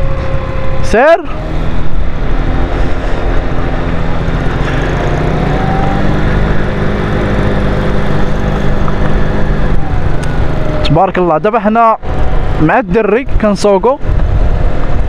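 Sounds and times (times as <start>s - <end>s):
even rushing noise: 0.0s - 15.0s
scooter engine running: 4.3s - 12.6s.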